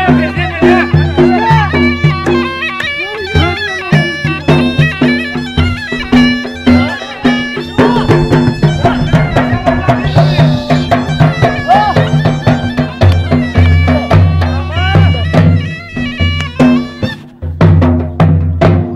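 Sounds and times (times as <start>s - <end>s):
dhol drum beating fast rhythm: 0.0s - 18.9s
reed pipe melody: 0.0s - 18.9s.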